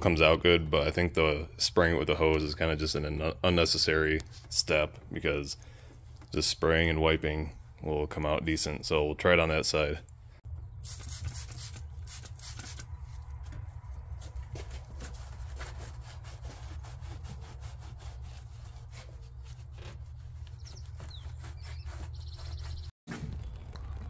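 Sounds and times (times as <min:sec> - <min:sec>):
rag scrubbing metal: 0:14.9 - 0:22.9.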